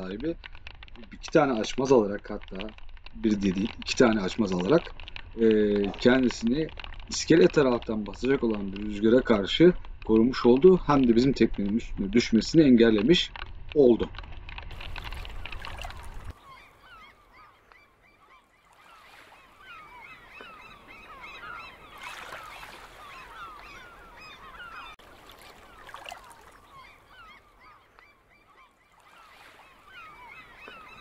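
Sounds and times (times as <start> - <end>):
wind buffeting microphone: 0.0 - 17.4
flock of birds chattering: 14.8 - 31.0.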